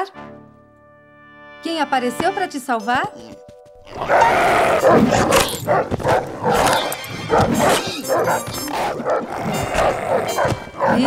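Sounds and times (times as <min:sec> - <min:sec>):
cartoon dogs barking: 0:03.9 - 0:11.0.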